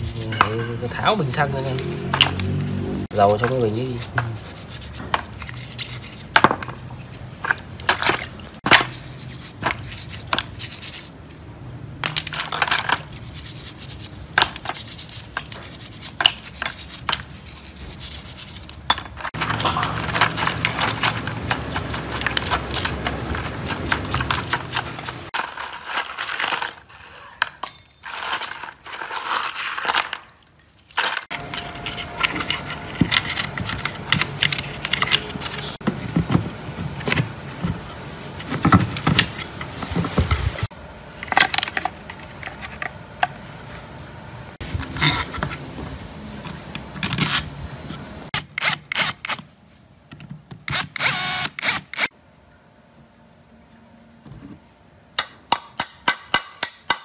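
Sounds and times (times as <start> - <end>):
brush scrubbing in basin: 0.0 - 6.3, 8.3 - 11.2, 13.1 - 25.4
metal screws clinking and scraping: 0.0 - 11.1, 12.0 - 35.7, 46.4 - 47.5.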